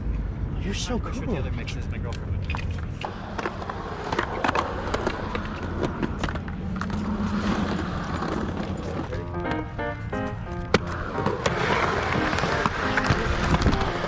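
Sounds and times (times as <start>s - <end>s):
skateboard wheels rolling on concrete: 1.8s - 14.0s
skateboard clacks: 2.1s - 9.6s, 10.6s - 14.0s
skateboard truck grinding on ledge: 3.1s - 9.1s, 10.8s - 14.0s.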